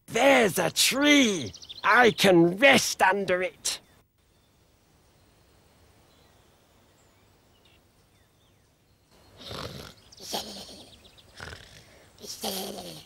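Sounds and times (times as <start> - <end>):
cartoon snoring: 9.4 - 10.0, 11.4 - 13.0.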